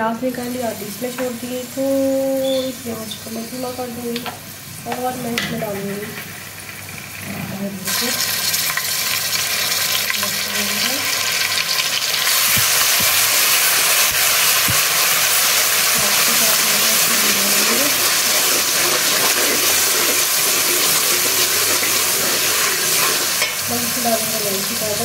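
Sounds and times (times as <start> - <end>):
hot oil sizzling: 0.0 - 25.0
metal spoon scraping a pot: 17.6 - 23.6.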